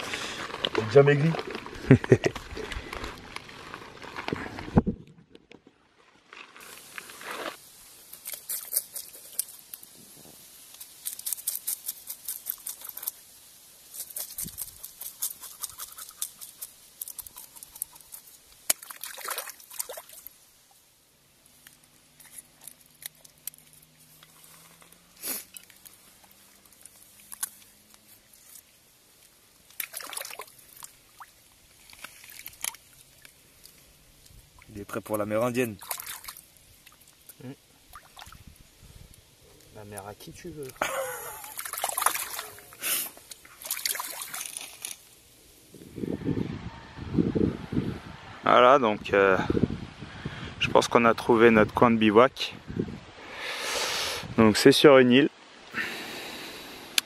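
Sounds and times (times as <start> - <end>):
river water trickling and splashing: 7.0 - 45.5
knife scraping fish scales: 7.2 - 9.6, 10.8 - 13.2, 13.9 - 18.4.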